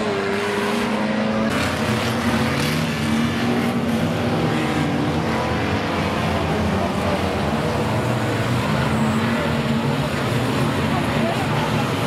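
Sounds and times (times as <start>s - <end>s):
racing car engines passing: 0.0s - 12.0s.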